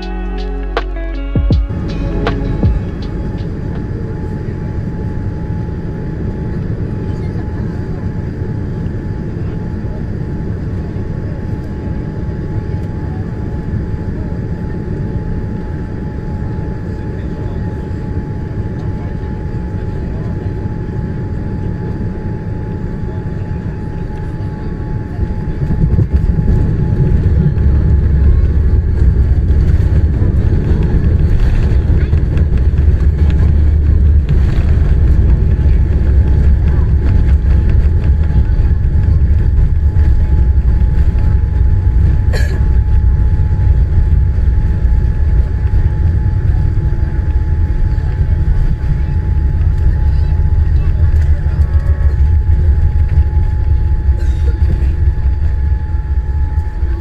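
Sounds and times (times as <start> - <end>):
airliner cabin rush: 25.0 - 57.0
loud low landing rumble: 25.6 - 51.3.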